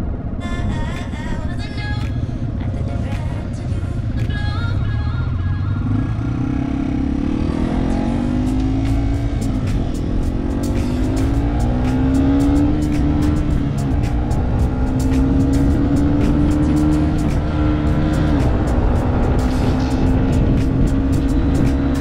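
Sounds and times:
motorcycle engine pulling hard: 0:05.8 - 0:22.0
sharp ticks: 0:07.9 - 0:22.0.

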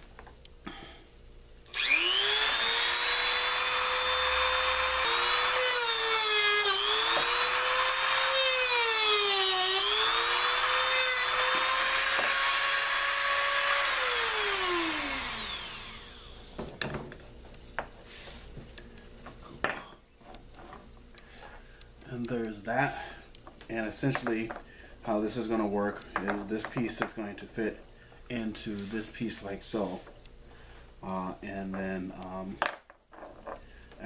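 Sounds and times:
rotary tool cutting bone: 0:01.7 - 0:16.0
rotary tool spinning down: 0:01.7 - 0:16.4.

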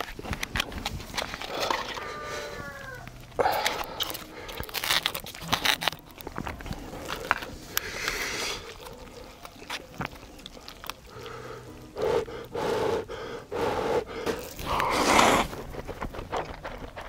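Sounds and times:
mouth clicks: 0:00.0 - 0:15.6
crunchy chewing: 0:00.0 - 0:17.0
slurp-like hiss: 0:07.5 - 0:09.4, 0:11.1 - 0:15.6.

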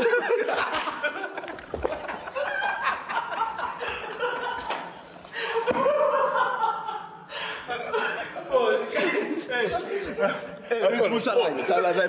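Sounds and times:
men laughing: 0:00.0 - 0:12.0.

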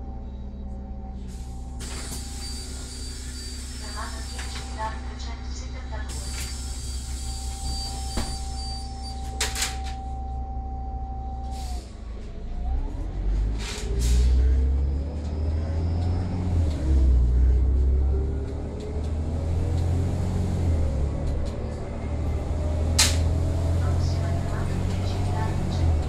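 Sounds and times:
bus engine rumbling: 0:00.0 - 0:26.0
pneumatic door air hisses: 0:01.4 - 0:04.5, 0:06.1 - 0:09.0.

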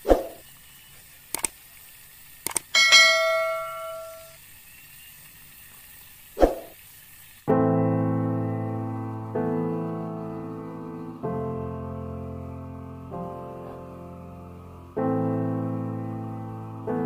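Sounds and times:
sharp clicks: 0:01.3 - 0:01.6, 0:02.4 - 0:02.7
bell-like notification chime: 0:02.8 - 0:04.3
piano music: 0:02.8 - 0:04.3, 0:07.6 - 0:17.0.

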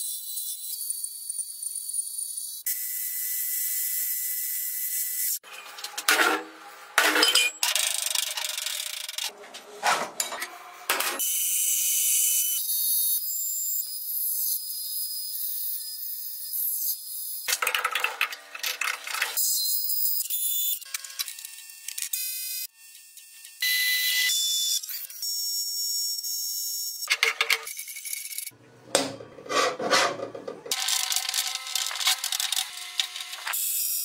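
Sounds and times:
metal parts clattering on workbench: 0:05.5 - 0:08.7, 0:17.5 - 0:19.4, 0:27.1 - 0:27.7, 0:29.0 - 0:33.6.

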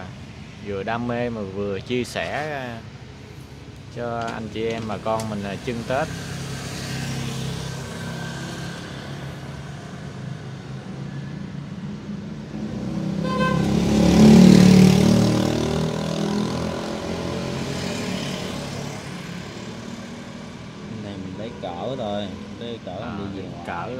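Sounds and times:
traffic hum: 0:00.0 - 0:23.9
vehicle engine passing by: 0:05.0 - 0:10.6, 0:12.1 - 0:23.9.

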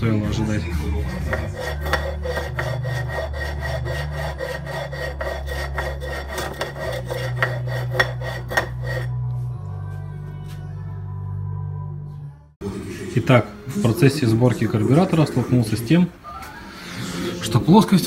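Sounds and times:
metal scraping on grinding stone: 0:00.9 - 0:09.2.

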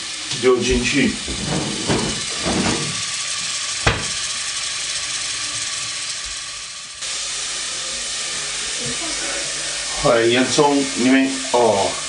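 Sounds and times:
onions sizzling in oil: 0:00.0 - 0:12.0
sharp knock: 0:03.8 - 0:04.2.

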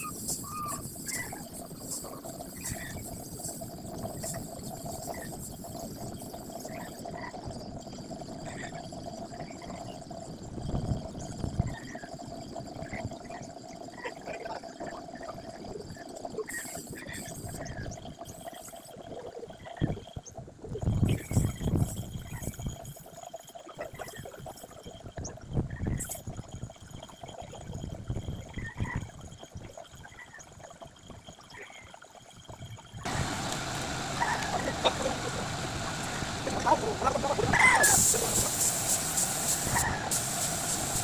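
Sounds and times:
spray gun air hiss: 0:00.0 - 0:07.0, 0:16.5 - 0:17.5, 0:33.0 - 0:41.0
air compressor running: 0:33.0 - 0:41.0.

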